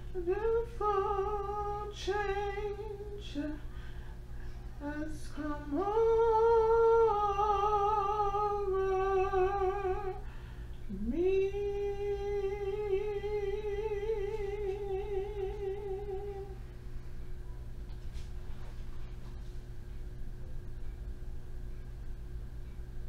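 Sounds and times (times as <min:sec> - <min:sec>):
steady low hum: 0:00.0 - 0:23.0
woman singing long notes: 0:00.1 - 0:03.6, 0:04.8 - 0:10.2, 0:10.9 - 0:16.6.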